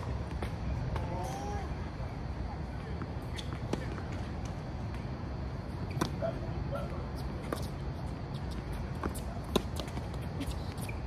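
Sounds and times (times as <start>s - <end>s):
tennis balls struck by rackets: 2.9s - 6.4s, 8.6s - 10.4s.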